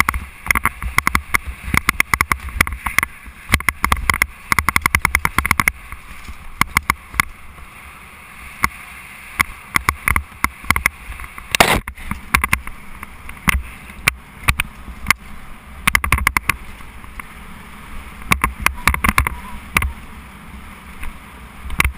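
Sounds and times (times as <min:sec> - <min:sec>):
bike clattering over bumps: 0:00.0 - 0:07.4, 0:09.4 - 0:17.3, 0:18.2 - 0:20.1
wind rumbling on microphone: 0:00.0 - 0:21.9.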